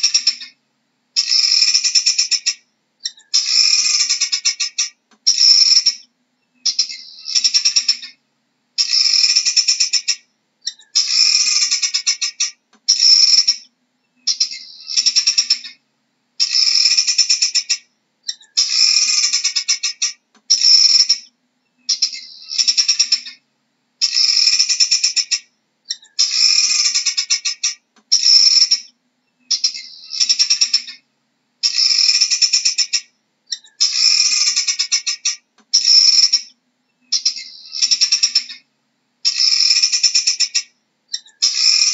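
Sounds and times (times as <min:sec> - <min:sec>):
guineafowl calling: 0:00.0 - 0:00.6, 0:01.2 - 0:08.2, 0:08.8 - 0:15.8, 0:16.4 - 0:21.3, 0:21.9 - 0:23.4, 0:29.5 - 0:31.0, 0:31.6 - 0:36.5, 0:37.1 - 0:38.6, 0:39.3 - 0:41.9.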